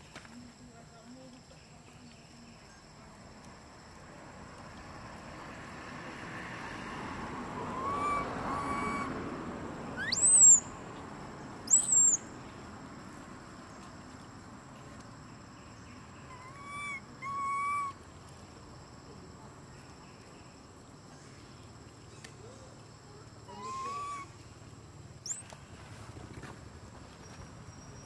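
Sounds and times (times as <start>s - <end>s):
high insect hum: 0.0s - 28.0s
shrill animal squeals: 7.7s - 9.1s, 10.0s - 10.6s, 16.3s - 17.9s, 23.5s - 24.3s.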